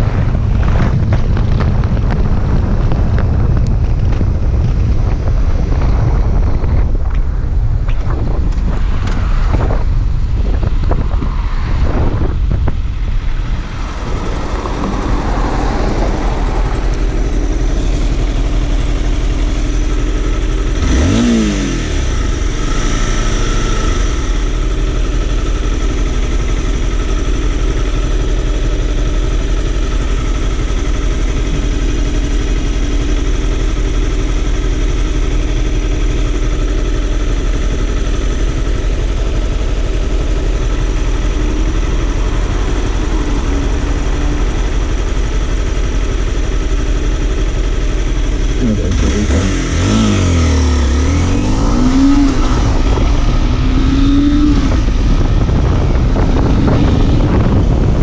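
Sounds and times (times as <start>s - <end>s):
wind rushing over microphone: 0.0s - 58.0s
motorcycle engine idling: 12.4s - 58.0s.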